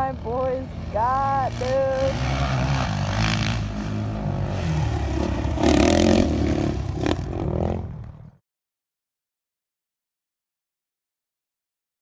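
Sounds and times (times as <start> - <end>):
dirt bike engines revving: 0.0 - 8.4.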